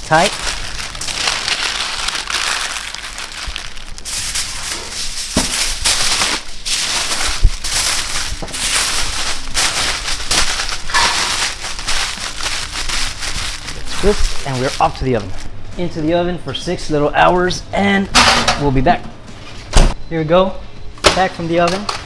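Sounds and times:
paper and foil crinkling: 0:00.0 - 0:15.5.

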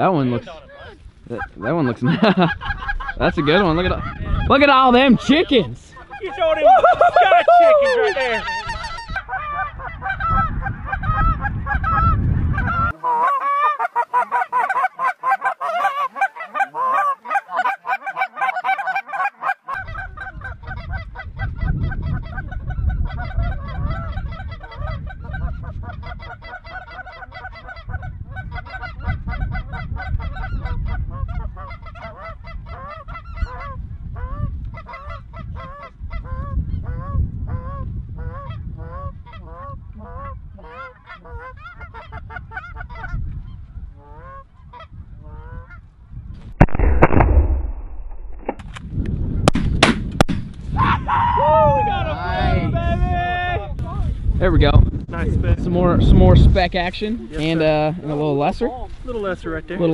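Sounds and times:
geese honking: 0:01.3 - 0:21.3, 0:22.1 - 0:33.7
low rumbling noise: 0:46.5 - 0:48.7.

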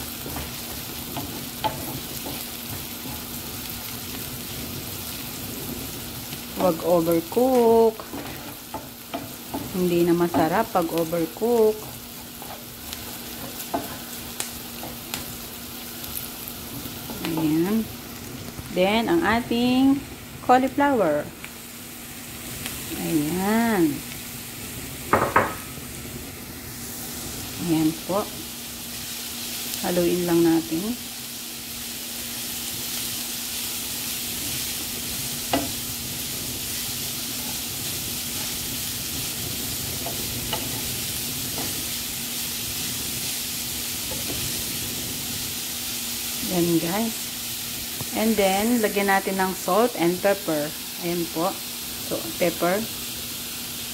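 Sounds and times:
vegetables sizzling in oil: 0:00.0 - 0:53.9
wooden spoon scraping a pan: 0:00.1 - 0:06.0, 0:06.6 - 0:15.5, 0:36.7 - 0:42.0
wooden spatula scraping a pan: 0:06.6 - 0:15.4.

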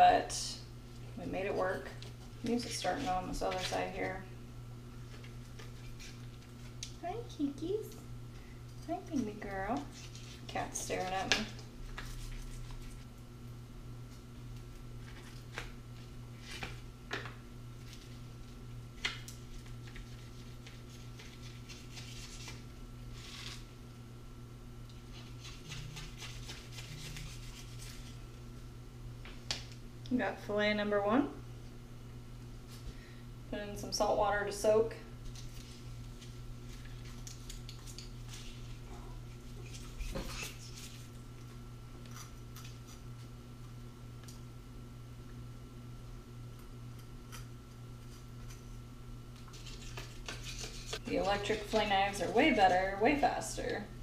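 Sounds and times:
steady low hum: 0:00.0 - 0:54.0
knife scrape: 0:49.5 - 0:51.6.

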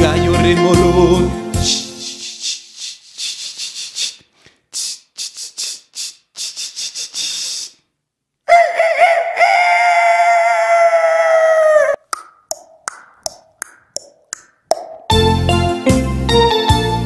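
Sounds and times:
shaker strokes: 0:01.6 - 0:07.8
rooster crowing: 0:08.5 - 0:12.0.

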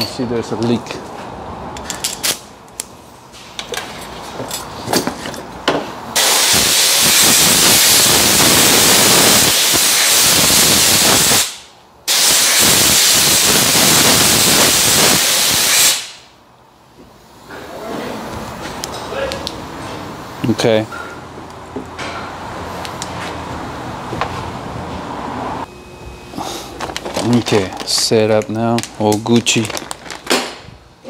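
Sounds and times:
compressed air blow gun hissing: 0:06.2 - 0:16.2.

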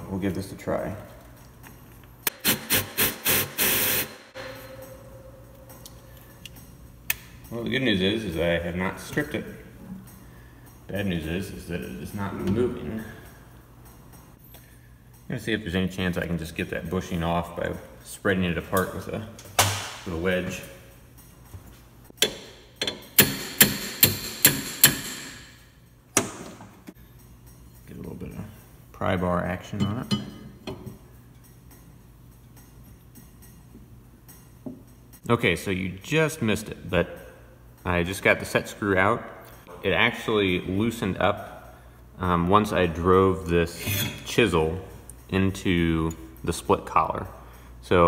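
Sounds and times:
impact gun hammering: 0:23.2 - 0:25.5.

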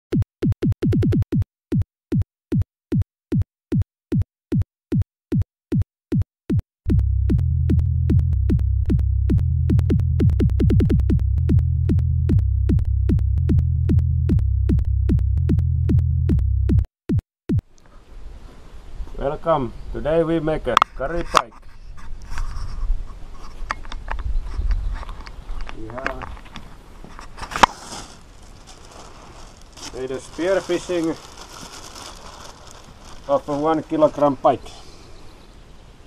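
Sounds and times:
deep bass line: 0:00.1 - 0:17.6
drum machine kick: 0:00.1 - 0:17.7.

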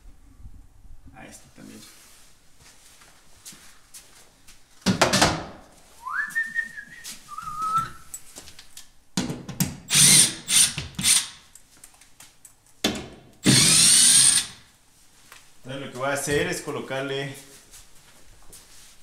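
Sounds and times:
person whistling: 0:06.0 - 0:08.1
power drill driving screws: 0:09.9 - 0:11.4, 0:13.4 - 0:14.6.

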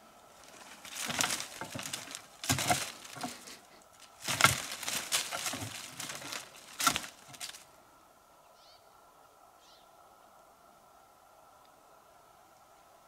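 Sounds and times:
rustling leaves: 0:00.0 - 0:13.0
twigs snapping: 0:00.3 - 0:07.7.

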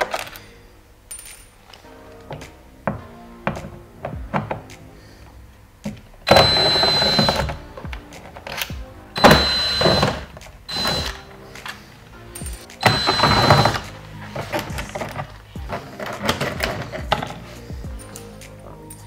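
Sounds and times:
background music: 0:00.0 - 0:19.0
drill motor whirring: 0:06.3 - 0:07.5, 0:09.2 - 0:11.2, 0:12.8 - 0:13.8
drill clicks: 0:06.3 - 0:07.6, 0:08.5 - 0:11.2, 0:12.8 - 0:13.9.

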